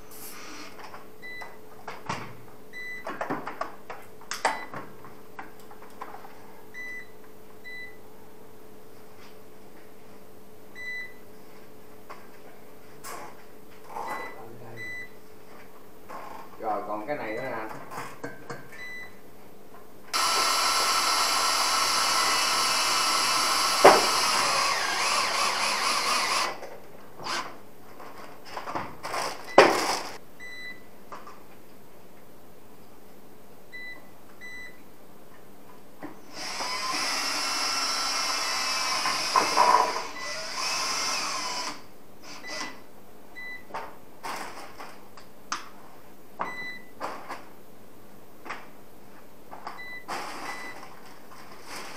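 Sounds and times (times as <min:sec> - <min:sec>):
power tool motor running: 0:20.2 - 0:26.6, 0:36.3 - 0:42.8.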